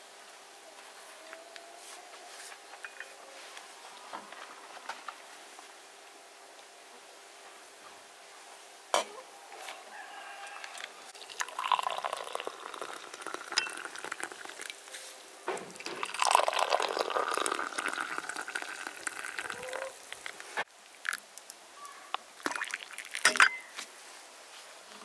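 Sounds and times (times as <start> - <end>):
tea pouring into glasses: 10.7 - 15.0, 15.6 - 21.5, 22.4 - 23.7.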